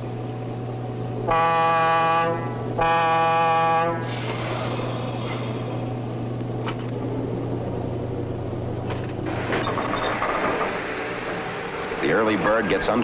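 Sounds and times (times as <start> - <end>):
diesel engine humming: 0.0 - 13.0
locomotive air horn blast: 1.2 - 4.8.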